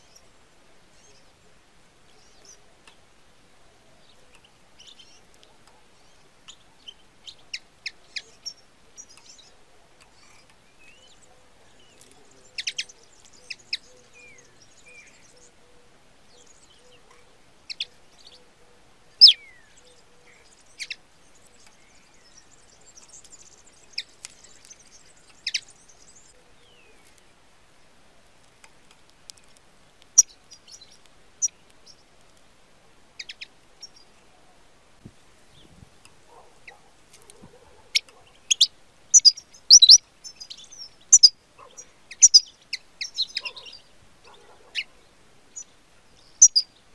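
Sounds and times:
finch chirping: 4.0 - 15.6, 16.4 - 18.6, 19.2 - 27.2, 30.2 - 32.0, 33.2 - 34.1, 36.3 - 44.9, 45.5 - 46.8.

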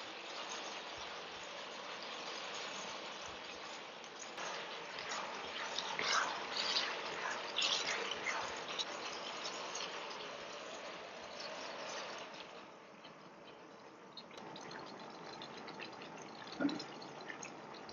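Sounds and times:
food sizzling in a wok: 0.0 - 12.8.

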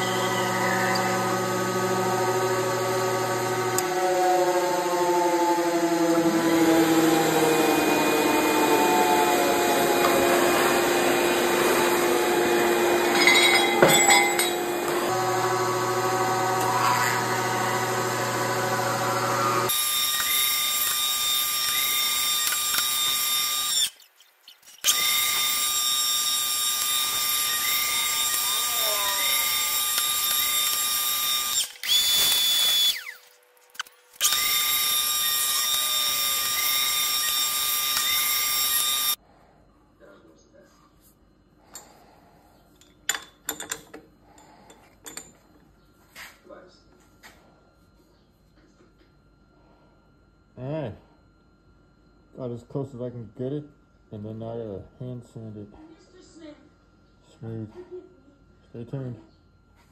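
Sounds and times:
milling machine whine: 0.0 - 39.2
metal cutting rasp: 19.7 - 33.2.

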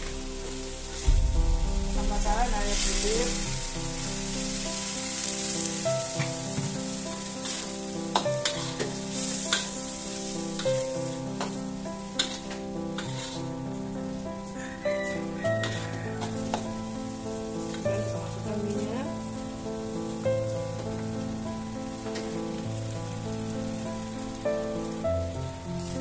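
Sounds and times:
food sizzling in a wok: 0.0 - 26.0
metal spatula scraping a pan: 2.3 - 10.8, 12.2 - 13.5, 15.4 - 16.9.

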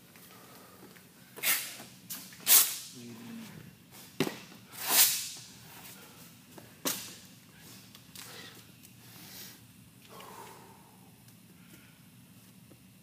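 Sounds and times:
person breathing heavily: 0.2 - 1.4, 5.8 - 6.4, 7.5 - 12.1.

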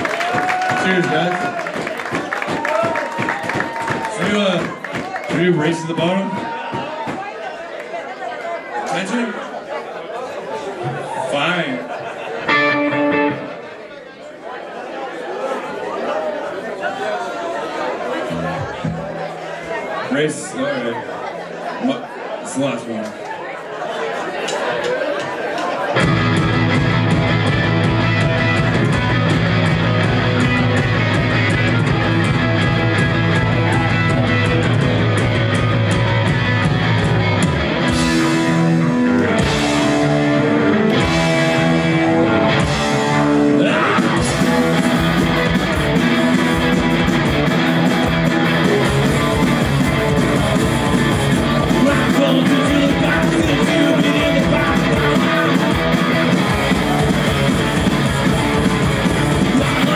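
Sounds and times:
live punk rock band: 12.4 - 13.5, 25.9 - 59.9
electric guitar: 12.4 - 13.6, 26.0 - 59.9
person singing: 51.5 - 55.9.

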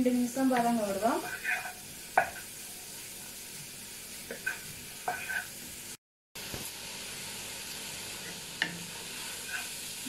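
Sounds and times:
vegetables sizzling in butter: 0.0 - 10.0
spatula scraping pan: 0.4 - 5.6, 8.2 - 10.0.

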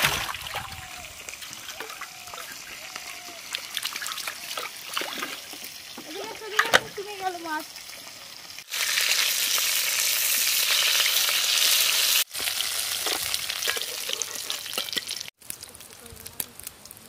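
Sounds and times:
fish sizzling in hot oil: 1.0 - 17.0
spatula scraping and clinking: 13.0 - 15.2.

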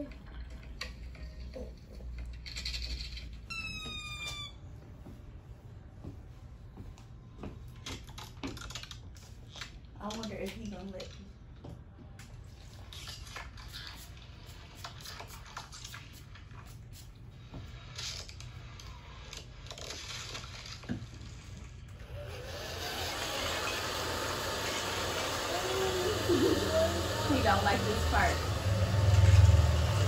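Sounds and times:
hair dryer running: 22.0 - 30.0.

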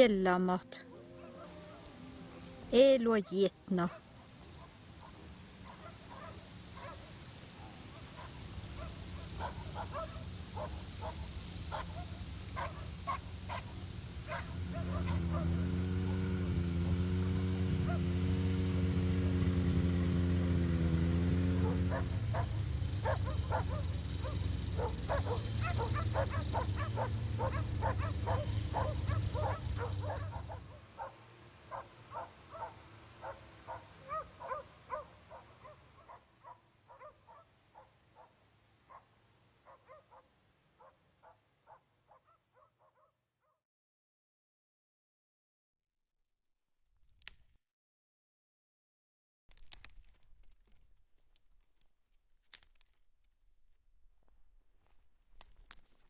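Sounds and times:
snowmobile engine humming: 0.7 - 38.3.

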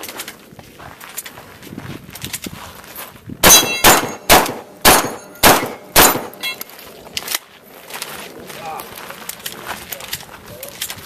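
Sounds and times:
shotgun shots: 3.4 - 6.4
steel targets clanging: 3.4 - 6.6.

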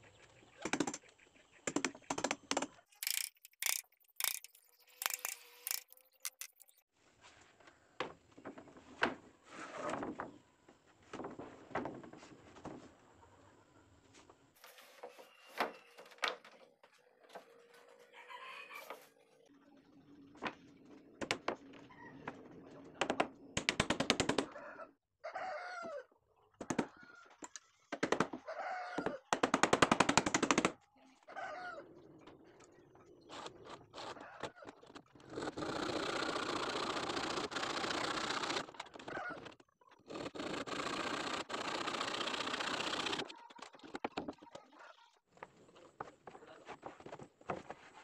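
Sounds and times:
rooster crowing: 24.6 - 26.1.

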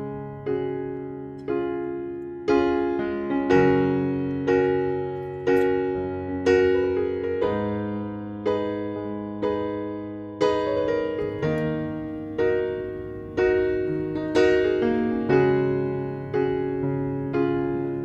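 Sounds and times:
piano chords: 0.0 - 18.0.

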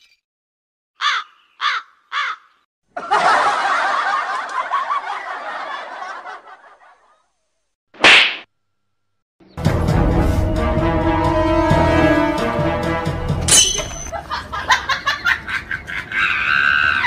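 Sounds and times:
crowd laughing: 2.9 - 7.3, 14.1 - 17.0.

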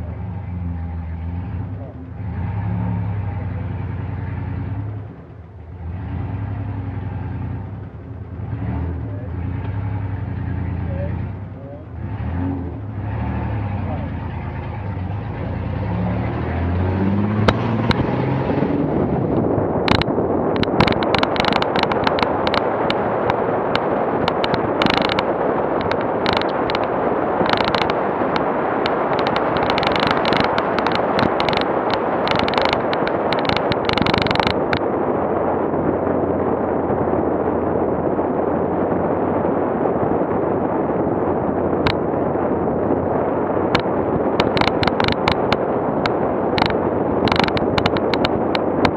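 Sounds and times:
engine revving: 0.0 - 48.9
tyres rumbling on dirt road: 0.0 - 48.9
wind noise: 0.0 - 48.9
sharp knocks and rattles: 14.0 - 18.7, 19.8 - 34.9, 43.7 - 48.9.

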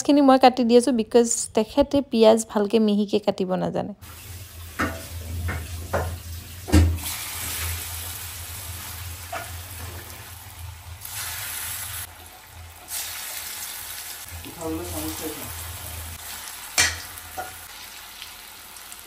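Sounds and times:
fritters sizzling in oil: 4.0 - 19.0
knocks on iron pan: 4.8 - 7.0.

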